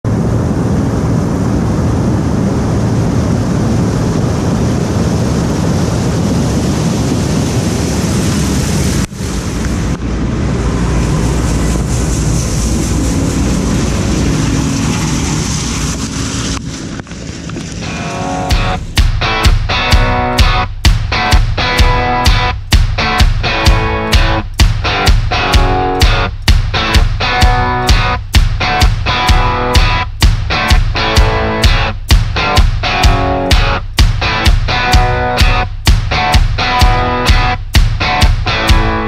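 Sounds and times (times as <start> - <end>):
combine harvester rumbling: 5.8 - 22.3.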